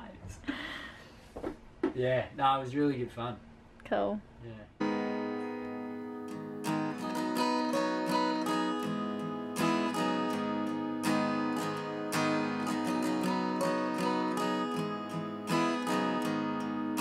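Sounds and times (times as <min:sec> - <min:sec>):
acoustic guitar strumming: 0:04.8 - 0:17.0.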